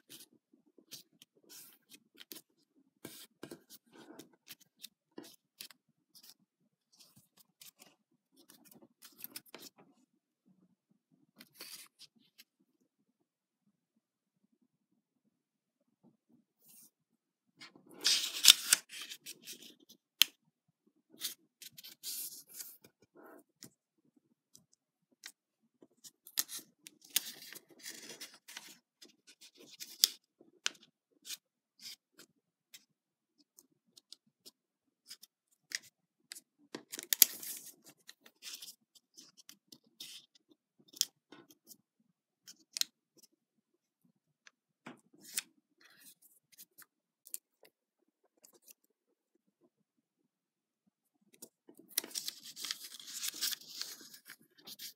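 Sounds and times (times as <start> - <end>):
paper crinkling: 51.8 - 54.9.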